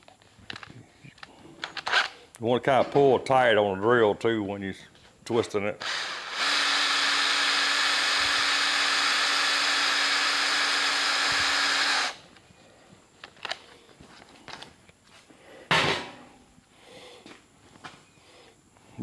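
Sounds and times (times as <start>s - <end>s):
electric drill running: 5.8s - 12.2s.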